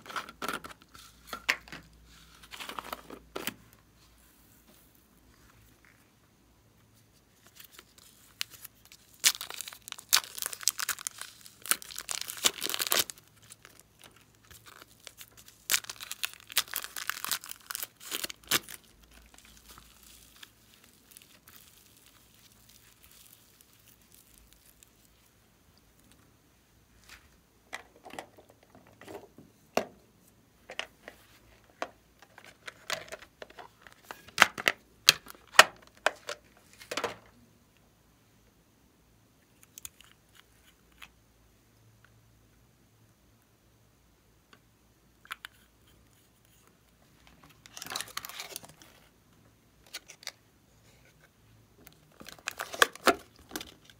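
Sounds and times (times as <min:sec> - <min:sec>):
plastic packets crinkling and tearing: 0:07.4 - 0:25.3, 0:47.4 - 0:49.1, 0:51.9 - 0:53.9.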